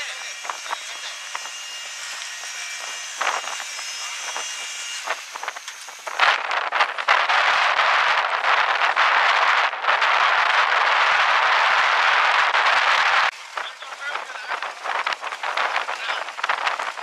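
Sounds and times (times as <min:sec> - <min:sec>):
race buggy engine: 0:05.7 - 0:17.0.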